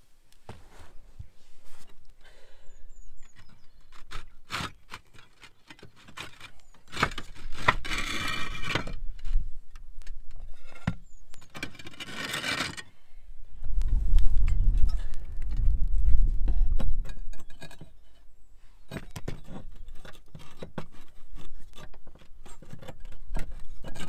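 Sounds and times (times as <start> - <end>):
roof tiles scraping: 3.2 - 13.0, 14.4 - 24.0
low rumble: 13.5 - 17.1.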